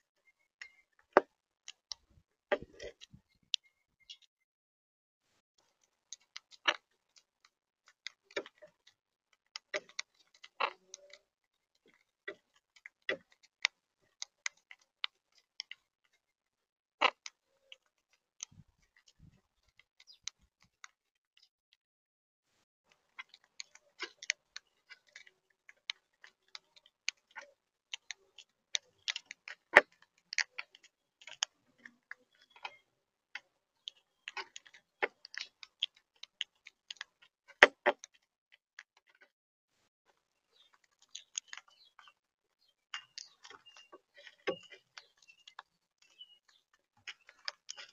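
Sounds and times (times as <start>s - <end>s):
parakeets cracking seeds: 23.1s - 38.3s, 40.5s - 42.2s, 42.9s - 47.9s.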